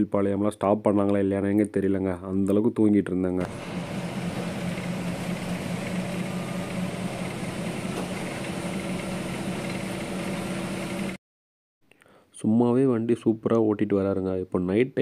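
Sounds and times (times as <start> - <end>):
diesel bus engine drone: 3.4 - 11.2.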